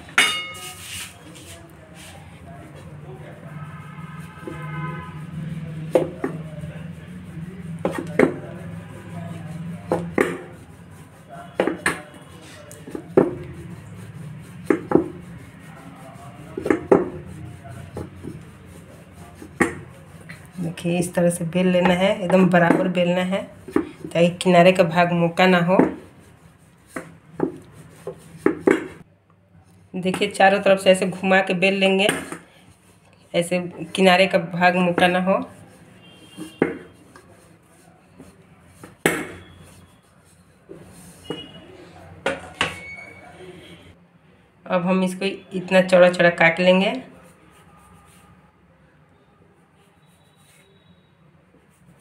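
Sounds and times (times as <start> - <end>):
rolling pin rolling dough: 0.0 - 29.1, 30.0 - 43.8
rolling pin knocking on surface: 5.9 - 6.5, 7.8 - 8.6, 9.8 - 10.6, 11.6 - 12.1, 12.9 - 13.6, 14.6 - 15.3, 16.6 - 17.3, 19.4 - 19.9, 21.8 - 23.0, 25.8 - 26.1, 26.9 - 29.0, 32.0 - 32.4, 36.3 - 37.0, 38.8 - 39.5.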